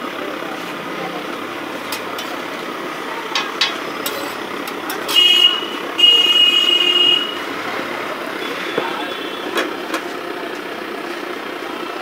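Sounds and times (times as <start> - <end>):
street background noise: 0.0 - 12.0
vehicle horn beeping: 5.0 - 7.6, 8.3 - 9.7.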